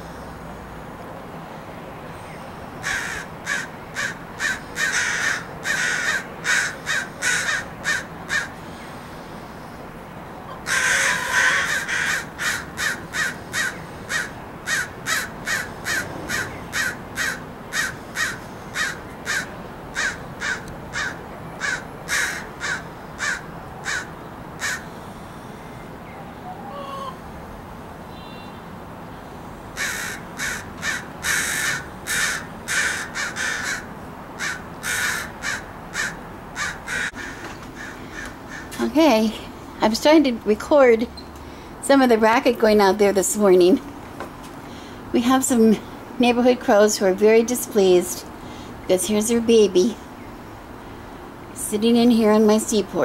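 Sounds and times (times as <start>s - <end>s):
crows cawing: 2.8s - 8.6s, 10.6s - 25.0s, 26.5s - 27.2s, 29.8s - 38.8s.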